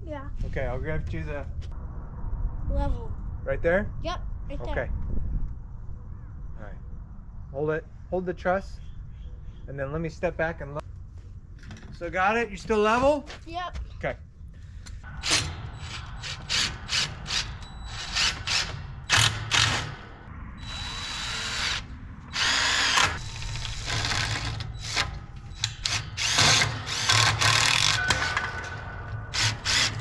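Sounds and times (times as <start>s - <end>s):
cordless drill driving screws: 20.6s - 25.0s, 25.8s - 28.0s.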